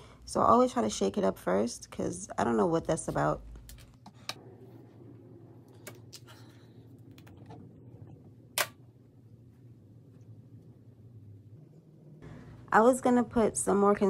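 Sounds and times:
faint low room hum: 0.0s - 14.0s.

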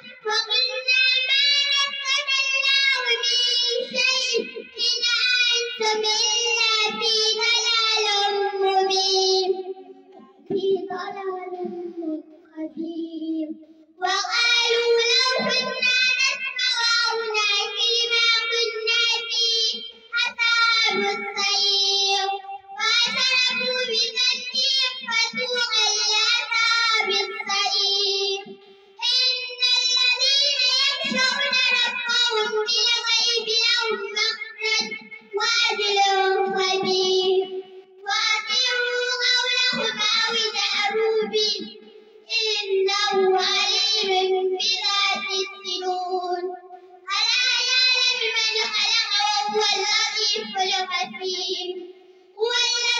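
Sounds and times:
girl chanting into a microphone: 0.0s - 52.9s.

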